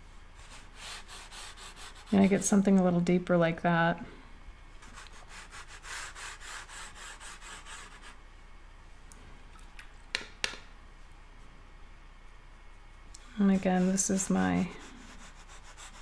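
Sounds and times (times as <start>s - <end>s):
paint brush scrubbing: 13.3s - 16.0s.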